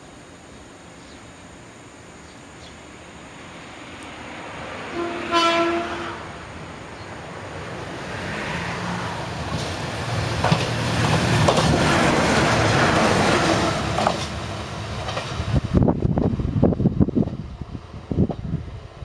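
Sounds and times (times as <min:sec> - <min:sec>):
diesel railcar passing: 0:00.0 - 0:19.0
train horn blast: 0:04.9 - 0:06.4
wheels clicking over rail joints: 0:09.4 - 0:12.9, 0:13.8 - 0:15.9.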